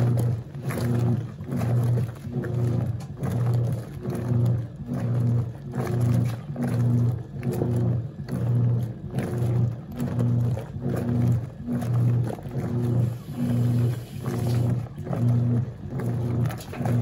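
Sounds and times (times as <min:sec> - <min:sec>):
washing machine motor humming: 0:00.0 - 0:17.0
water sloshing: 0:00.0 - 0:17.0.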